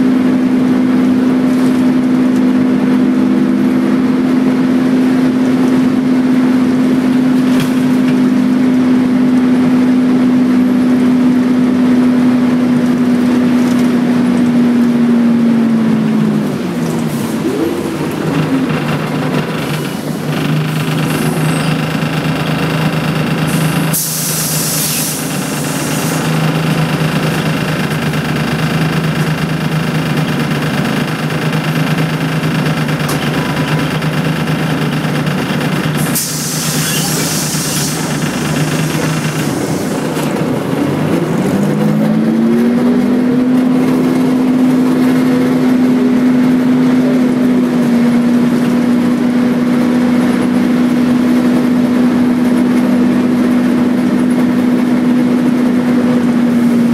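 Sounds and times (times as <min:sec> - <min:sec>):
bus diesel engine running: 0:00.0 - 0:56.9
air brake hisses: 0:23.9 - 0:26.2, 0:36.0 - 0:38.1.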